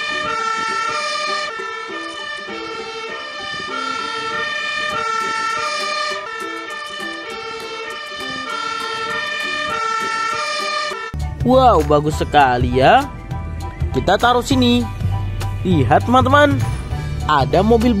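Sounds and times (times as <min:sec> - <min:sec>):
two-tone fire engine siren: 0:00.0 - 0:11.2.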